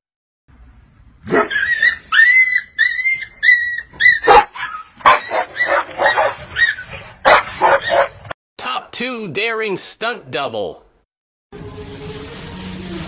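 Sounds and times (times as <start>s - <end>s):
dogs barking: 1.2s - 8.3s
dogs yelping and whining: 1.2s - 8.3s.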